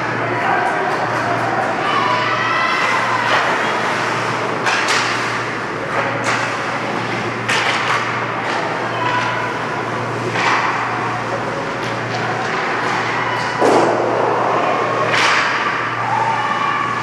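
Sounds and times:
steady low hum: 0.0 - 17.0
hockey sticks knocking puck: 2.8 - 9.5, 10.3 - 11.0, 11.6 - 15.8.

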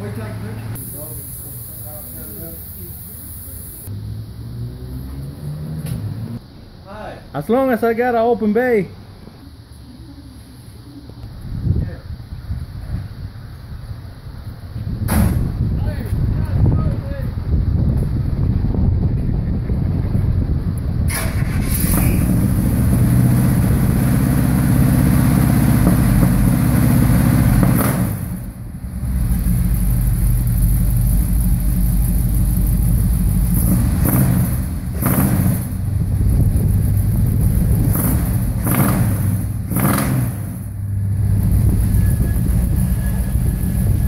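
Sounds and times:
car engine deep rumble: 11.0 - 44.0
engine throttle blips: 20.7 - 44.0.

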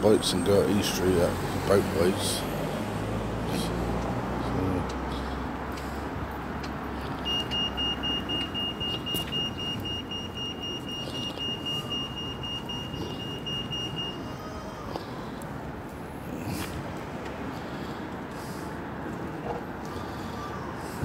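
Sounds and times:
street traffic hum: 0.0 - 21.0
crossing signal high-pitched beeps: 7.2 - 14.3.

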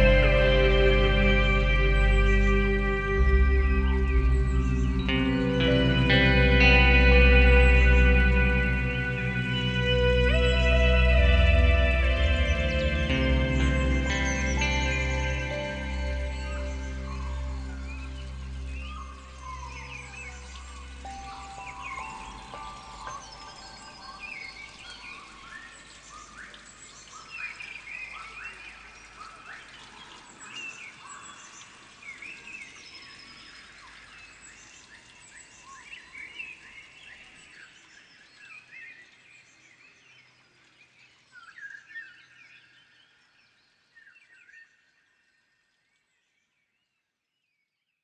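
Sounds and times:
low drone: 0.0 - 25.6
birds chirping and trilling: 0.0 - 45.4.

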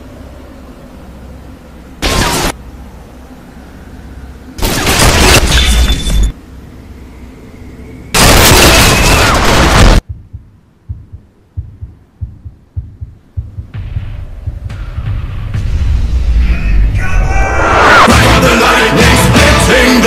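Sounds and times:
faint low thuds: 10.0 - 16.2.

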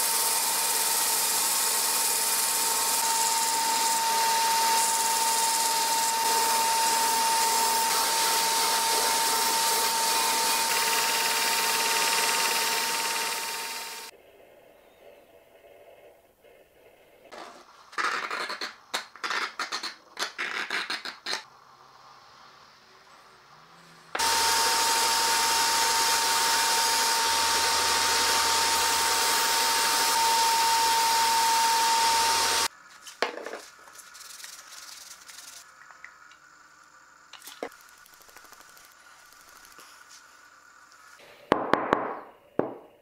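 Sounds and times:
belt grinder whining: 0.0 - 14.1, 24.2 - 32.7.

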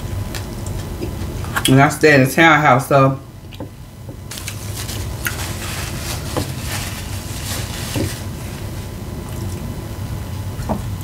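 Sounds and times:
tortilla chip crunching: 4.3 - 8.4
plastic container rustling: 4.3 - 8.9.

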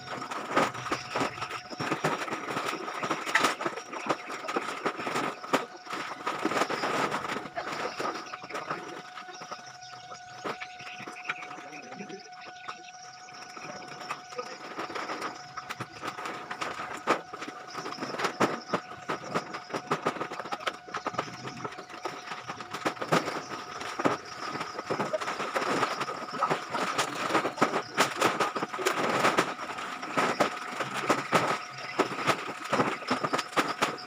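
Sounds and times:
drone of high tones: 0.0 - 34.0
plastic sacks rustling and thudding: 13.9 - 34.0.

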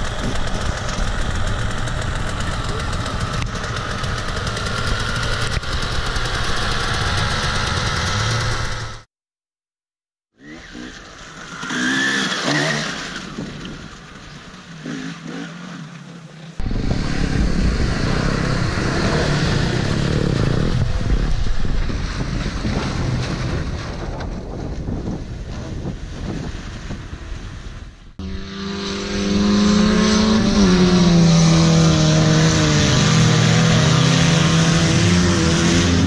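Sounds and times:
motorbike engines idling: 0.0 - 9.0
suv engine revving in mud: 10.4 - 13.6, 17.2 - 21.1, 28.2 - 36.0.

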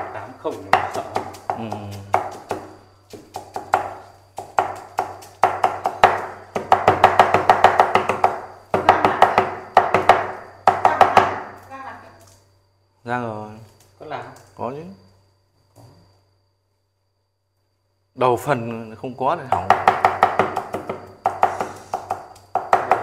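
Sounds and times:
cleaver chopping on wooden block: 0.6 - 11.5, 19.5 - 23.0.

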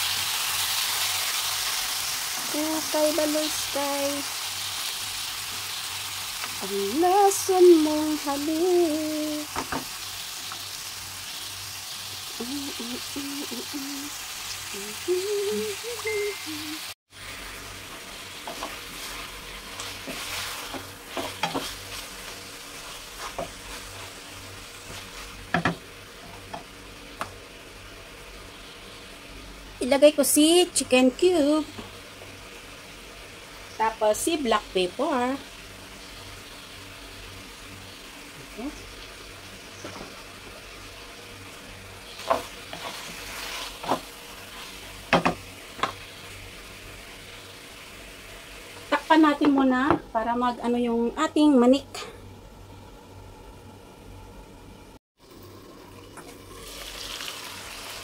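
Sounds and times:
chicken sizzling in a wok: 0.0 - 58.0
spatula knocking and scraping pan: 18.4 - 22.0, 22.8 - 24.1, 24.8 - 27.3, 42.2 - 46.0.

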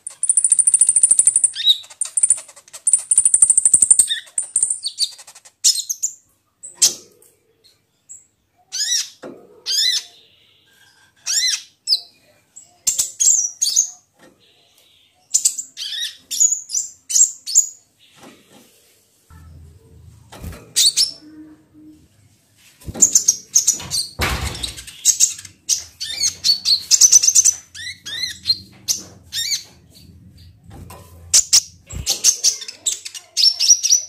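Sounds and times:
high-pitched bird chirps: 0.0 - 6.2, 31.4 - 34.0.

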